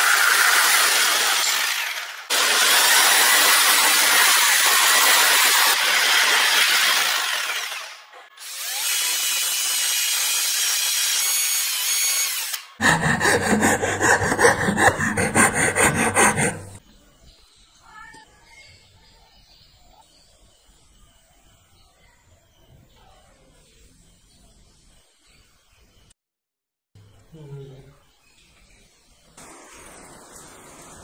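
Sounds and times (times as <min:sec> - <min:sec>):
electric drill boring wood: 0:00.0 - 0:16.8
power tool cutting wood: 0:00.0 - 0:16.8
file rasping on wood: 0:12.8 - 0:16.8.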